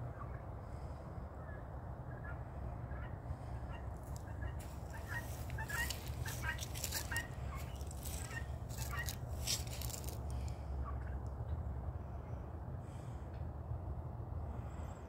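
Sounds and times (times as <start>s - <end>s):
steady low rumble: 0.0s - 15.0s
short bird calls: 3.6s - 11.0s
brushing rustles: 4.6s - 10.5s.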